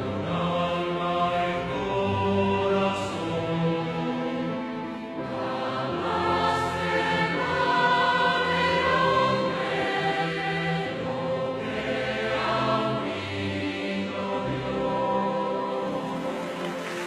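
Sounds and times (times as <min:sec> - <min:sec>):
choir singing a hymn: 0:00.0 - 0:17.0.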